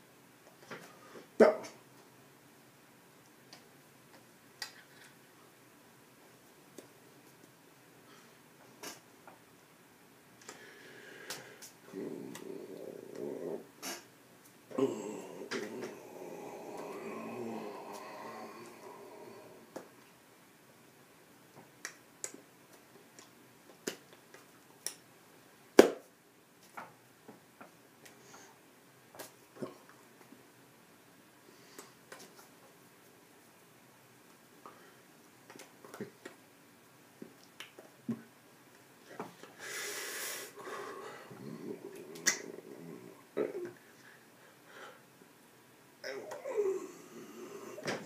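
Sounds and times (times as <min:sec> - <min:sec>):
mouth and hand noises: 0:06.2 - 0:09.5, 0:10.4 - 0:20.2, 0:21.5 - 0:25.2, 0:31.5 - 0:45.4
man breathing: 0:10.5 - 0:11.8, 0:39.4 - 0:41.9, 0:43.8 - 0:45.1
soft low murmurs: 0:11.4 - 0:14.1, 0:14.7 - 0:20.0, 0:40.6 - 0:44.2, 0:46.0 - 0:48.0
sharp clicks and snaps: 0:21.8 - 0:25.0.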